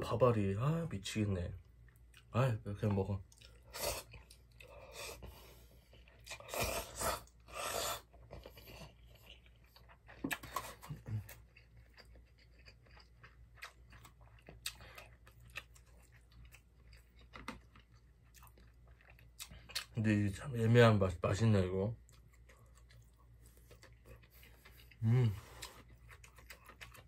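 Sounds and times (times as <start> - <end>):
chewing with wet clicks: 1.6 - 4.8, 5.8 - 6.6, 8.0 - 20.0, 22.0 - 27.0.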